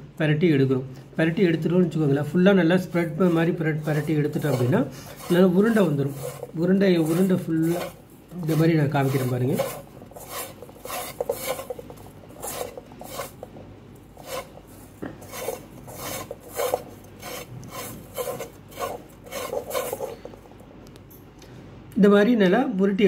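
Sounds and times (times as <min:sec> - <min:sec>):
breadcrumbs rustling in metal pan: 0:02.7 - 0:20.5.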